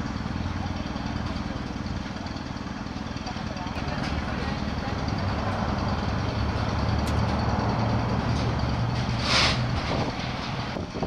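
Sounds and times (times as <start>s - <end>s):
low engine-like rumble: 0.0s - 11.0s
short loud hiss: 9.2s - 9.7s.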